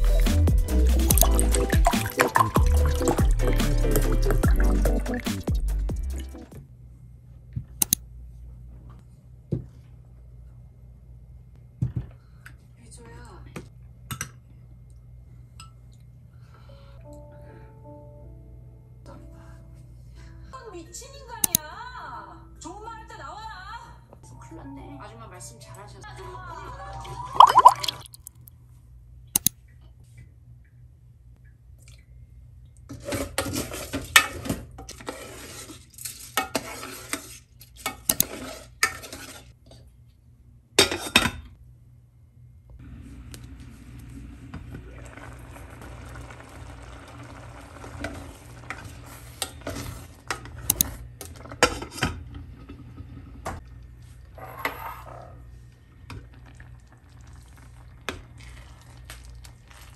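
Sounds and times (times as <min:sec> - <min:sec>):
utensils scraping metal pot: 0:32.9 - 0:39.6.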